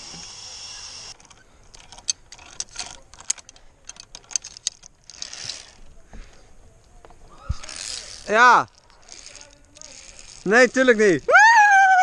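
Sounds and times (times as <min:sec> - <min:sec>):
steady hiss: 0:00.0 - 0:01.2
climbing gear clicking metallically: 0:00.3 - 0:05.8, 0:07.6 - 0:11.4.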